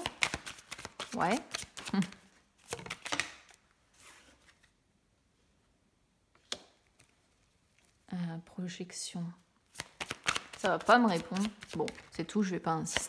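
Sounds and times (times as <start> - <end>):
cards clicking and flicking: 0.0 - 3.6, 9.7 - 12.1.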